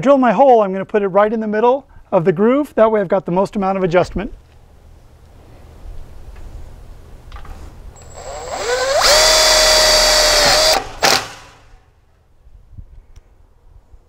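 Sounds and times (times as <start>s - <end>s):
impact driver whining: 8.0s - 11.7s.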